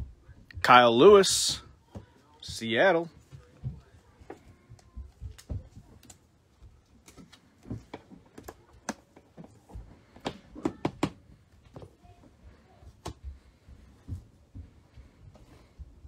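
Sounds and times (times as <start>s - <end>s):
cards clicking and tapping on table: 7.0s - 9.5s.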